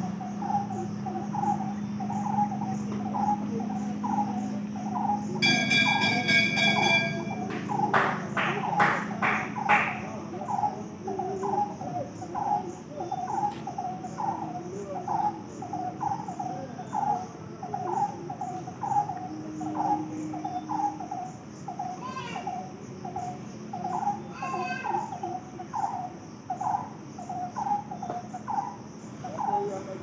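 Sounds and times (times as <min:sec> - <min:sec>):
insect chirping: 0:00.0 - 0:30.0
insects trilling: 0:00.0 - 0:30.0
sharp taps: 0:06.7 - 0:10.0.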